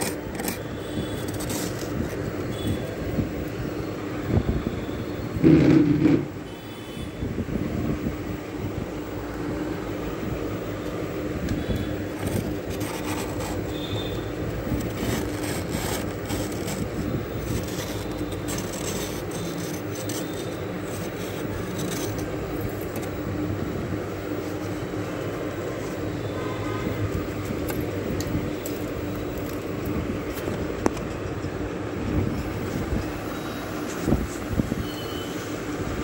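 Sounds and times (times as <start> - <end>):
frost being scraped: 0.0 - 3.0, 11.7 - 30.5.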